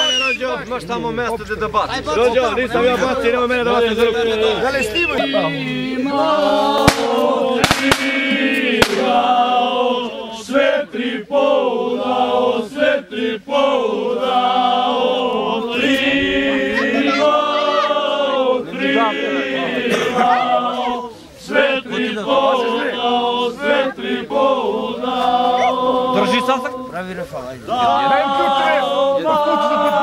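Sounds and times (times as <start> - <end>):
men chanting in unison: 2.2 - 30.0
sharp cracks: 6.8 - 9.3.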